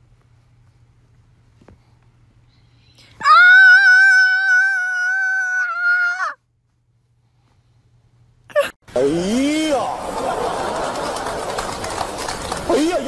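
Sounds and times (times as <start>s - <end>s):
long high-pitched cry: 3.2s - 6.4s.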